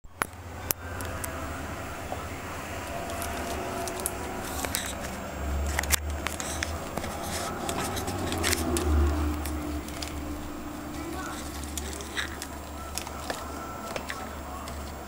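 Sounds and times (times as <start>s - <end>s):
camera handling rumble: 3.0s - 10.2s
hamster rustling tissue: 6.2s - 15.0s.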